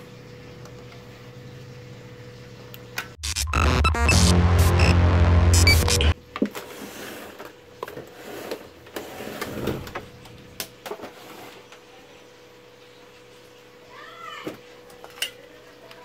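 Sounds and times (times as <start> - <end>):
loud electronic music: 3.2 - 6.2.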